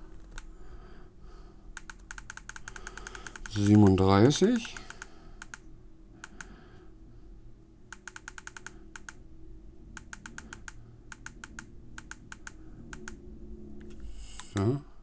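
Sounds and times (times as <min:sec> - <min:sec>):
rapid button clicks: 0:01.8 - 0:05.6.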